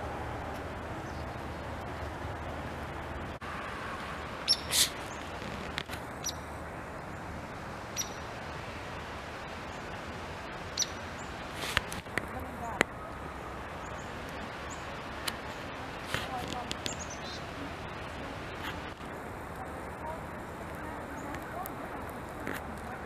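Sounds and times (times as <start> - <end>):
background hiss: 0.0 - 23.0
high-pitched bird chirps: 4.5 - 4.9.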